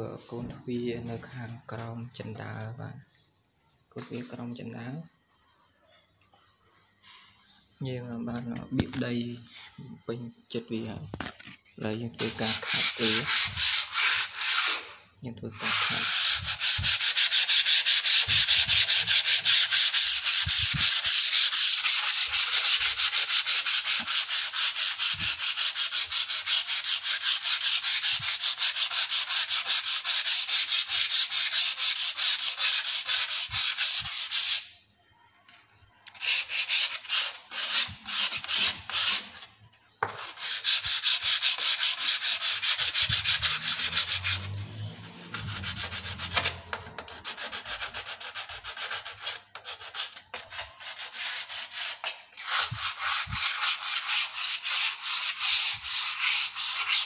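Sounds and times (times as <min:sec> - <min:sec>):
sandpaper rasping on wood: 0:12.2 - 0:34.7, 0:36.2 - 0:39.4, 0:40.0 - 0:57.0.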